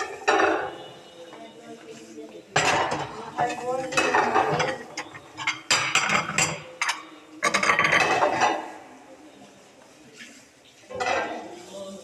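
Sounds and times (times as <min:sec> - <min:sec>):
plates and dishes clattering: 0:00.0 - 0:01.0, 0:02.5 - 0:08.8, 0:10.9 - 0:11.6.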